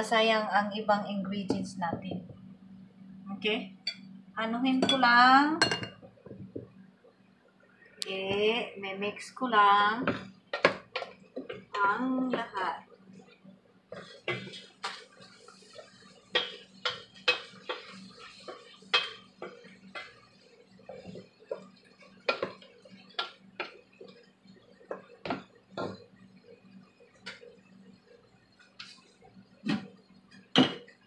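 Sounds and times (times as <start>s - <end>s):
wooden spatula scraping a pot: 13.9s - 24.2s.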